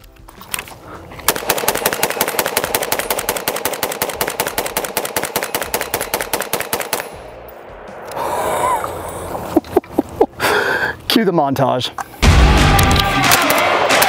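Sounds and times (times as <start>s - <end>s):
rifle firing rapid shots: 1.3s - 7.2s.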